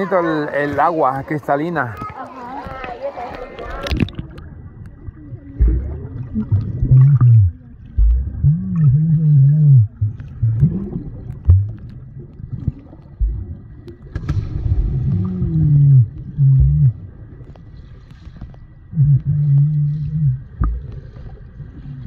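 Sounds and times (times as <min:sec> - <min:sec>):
people plunging into water: 0:00.0 - 0:22.0
rushing bubbles underwater: 0:02.8 - 0:22.0
short low hums: 0:05.0 - 0:11.9, 0:13.1 - 0:17.4, 0:18.8 - 0:22.0.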